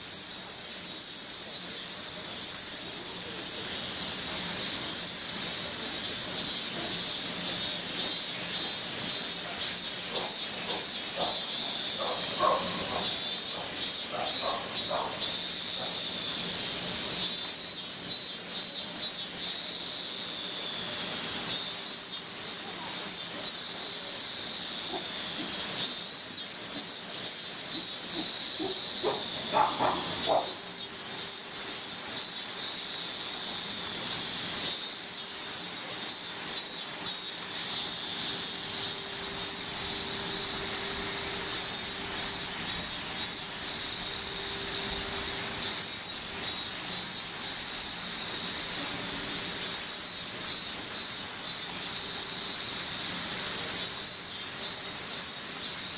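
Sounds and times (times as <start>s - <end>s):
cicadas shrilling: 0.0s - 55.9s.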